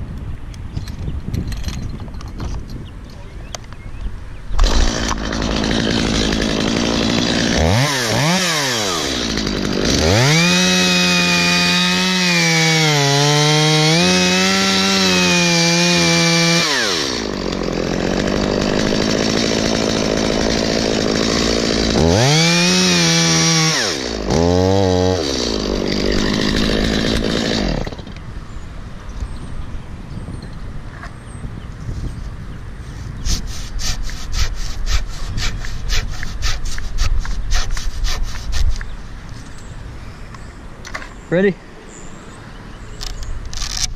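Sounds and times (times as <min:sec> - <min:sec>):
chainsaw idling and revving: 0:04.6 - 0:28.2, 0:33.3 - 0:39.0, 0:43.0 - 0:43.9.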